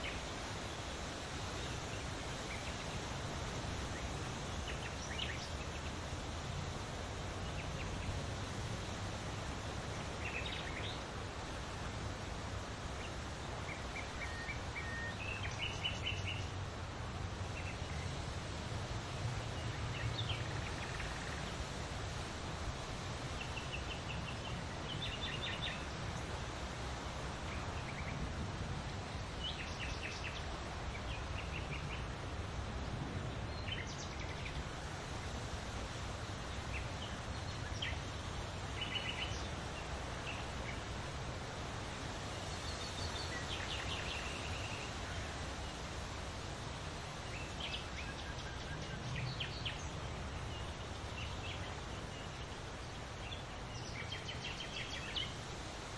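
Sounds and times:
leaves rustling in wind: 0:00.0 - 0:55.9.

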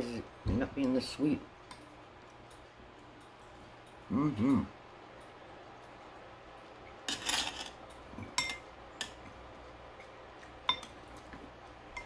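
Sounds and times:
metal spoon scraping: 0:07.1 - 0:07.8
spoon clinking on glass and metal: 0:08.4 - 0:09.1, 0:10.7 - 0:11.0.

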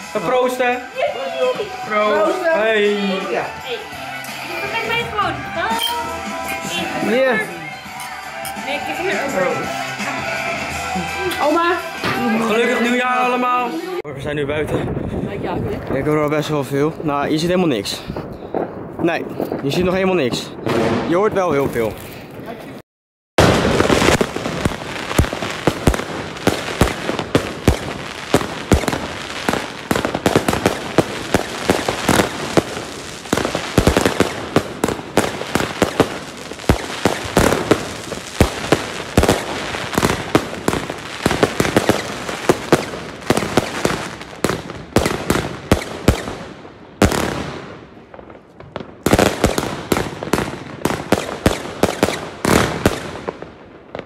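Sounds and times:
fireworks bangs and crackles: 0:14.4 - 0:22.8, 0:23.4 - 0:54.0.

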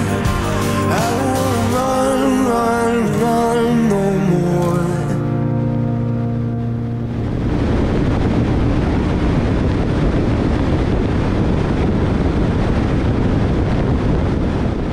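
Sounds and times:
wind rushing over microphone: 0:05.2 - 0:14.9.

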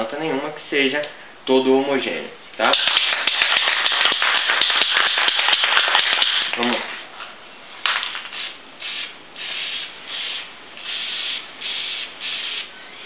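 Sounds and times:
spray paint can hissing: 0:02.7 - 0:06.5, 0:07.9 - 0:12.7.

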